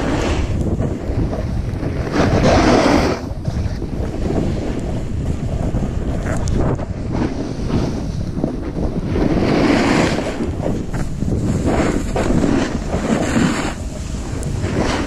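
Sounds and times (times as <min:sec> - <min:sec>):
snowboard sliding through snow: 0:00.0 - 0:15.0
wind rushing over microphone: 0:00.0 - 0:15.0.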